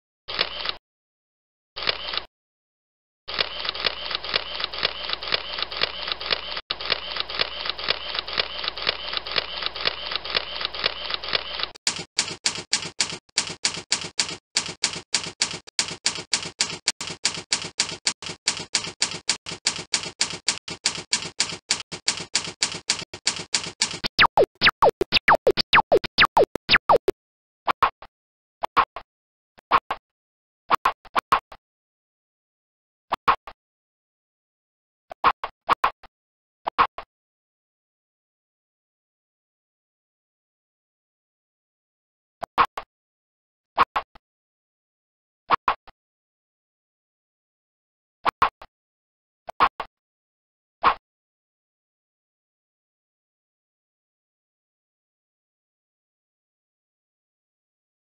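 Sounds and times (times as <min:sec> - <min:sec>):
typewriter key clicks effect: 0:09.4 - 0:27.1
short pitched blips: 0:24.0 - 0:27.1.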